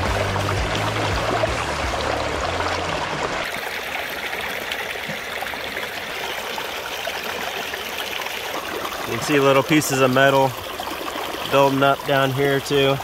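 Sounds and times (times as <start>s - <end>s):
water streaming through sluice box: 0.0s - 13.0s.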